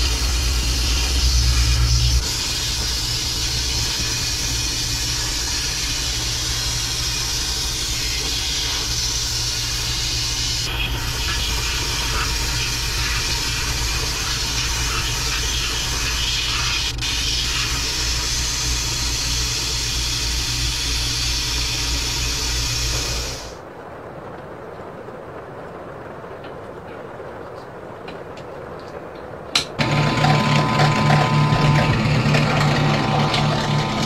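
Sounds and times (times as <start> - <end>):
low hum: 0.0 - 23.6
sandblasting gun hissing: 0.0 - 23.6.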